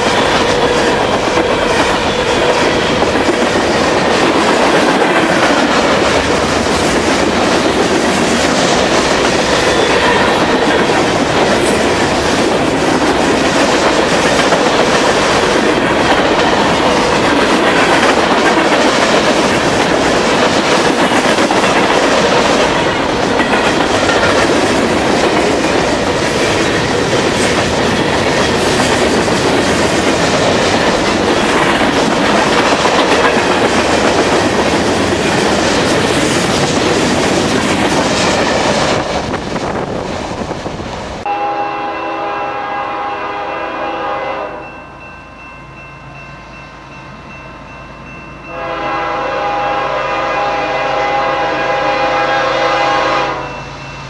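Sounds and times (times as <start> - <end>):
freight cars rolling on rails: 0.0 - 41.3
locomotive horn chord: 41.3 - 44.8, 48.5 - 53.6.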